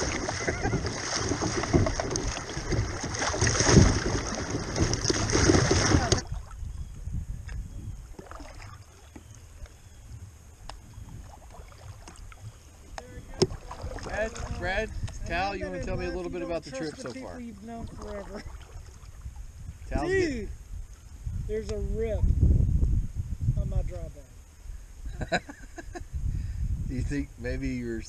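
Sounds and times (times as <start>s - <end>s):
water rushing and splashing: 0.0s - 6.8s, 8.1s - 9.8s, 10.4s - 20.4s
calm water: 0.0s - 22.4s.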